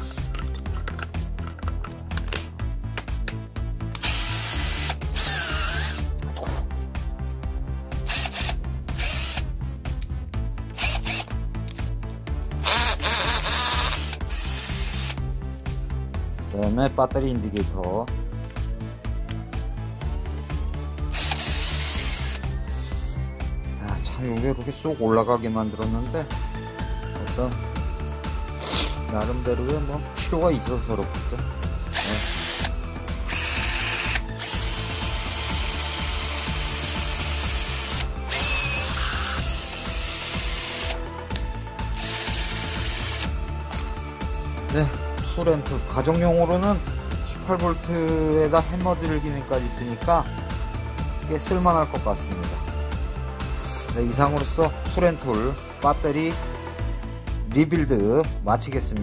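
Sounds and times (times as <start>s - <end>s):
background music: 0.0s - 59.0s
cordless hammer drill running: 4.0s - 6.0s, 8.1s - 9.4s, 10.8s - 11.3s, 12.6s - 15.2s, 21.1s - 22.4s, 31.9s - 32.7s, 33.3s - 41.0s, 42.0s - 43.3s.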